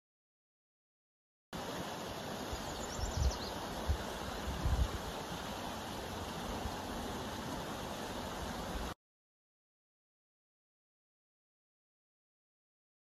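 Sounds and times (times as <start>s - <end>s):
rushing outdoor ambience: 1.6s - 9.0s
wind rumbling on microphone: 2.9s - 5.4s.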